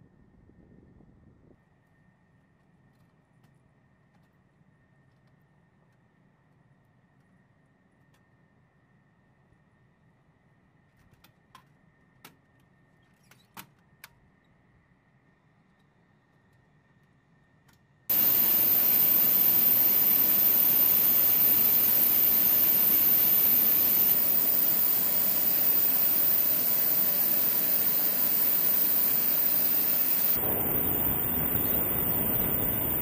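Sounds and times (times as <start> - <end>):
jet engine roar with whine: 18.1 - 33.0.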